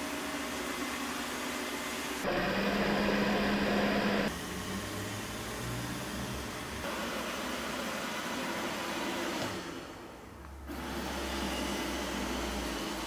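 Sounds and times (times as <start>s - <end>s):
robot vacuum humming: 2.2s - 4.3s.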